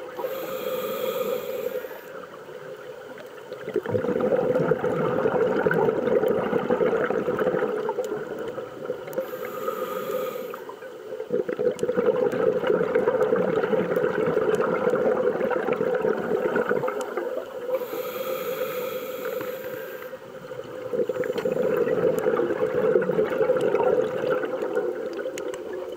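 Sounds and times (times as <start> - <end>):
regulator hissing inhalation: 0.2 - 2.2, 9.2 - 10.8, 17.7 - 20.2
underwater bubbling exhalation: 3.6 - 19.6, 20.4 - 25.9.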